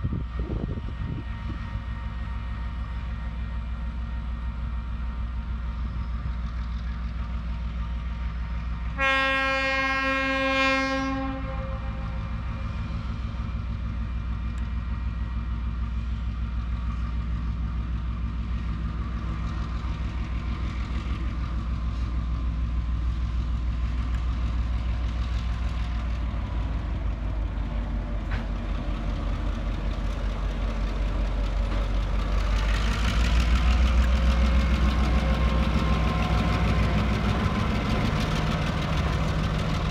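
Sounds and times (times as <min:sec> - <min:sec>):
diesel locomotive engine drone: 0:00.0 - 0:39.9
train wheels on rails: 0:00.0 - 0:39.9
train horn: 0:08.8 - 0:12.3.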